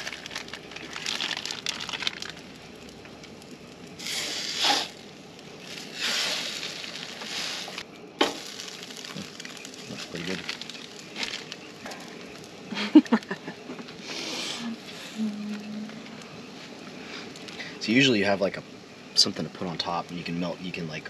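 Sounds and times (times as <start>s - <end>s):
plastic wrapping crinkling: 0.0s - 14.0s.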